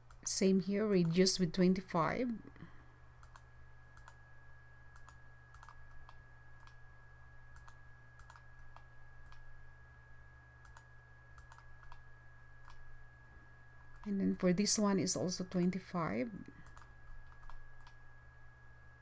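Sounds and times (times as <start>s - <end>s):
low hum: 0.0s - 19.0s
computer mouse clicks: 3.2s - 4.2s, 4.9s - 6.8s, 7.5s - 9.5s, 10.6s - 12.0s, 12.6s - 12.8s, 16.6s - 18.0s.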